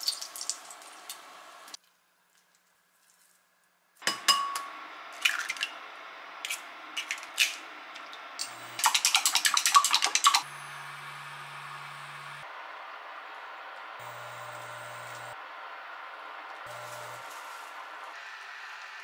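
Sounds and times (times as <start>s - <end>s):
chopsticks beating eggs in glass: 8.8s - 10.4s.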